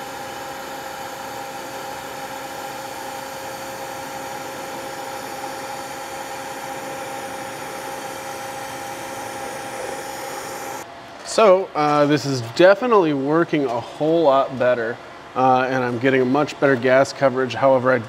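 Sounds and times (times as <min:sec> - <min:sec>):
welding arc hiss: 0:00.0 - 0:10.8.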